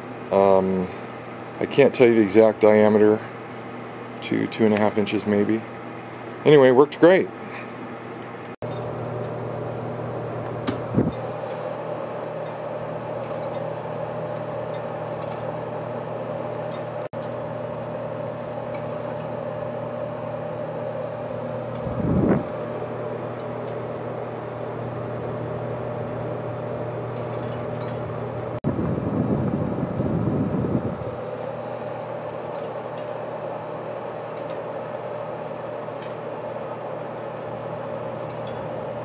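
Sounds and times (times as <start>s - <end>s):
stove blower humming: 0.0s - 39.0s.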